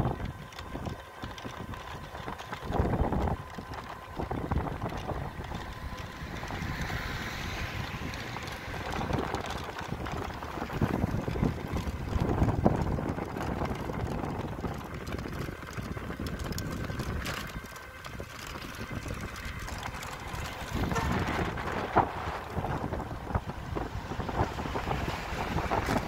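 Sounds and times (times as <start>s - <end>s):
road rumble from vehicle: 0.0s - 26.0s
wind buffeting microphone: 0.0s - 26.0s.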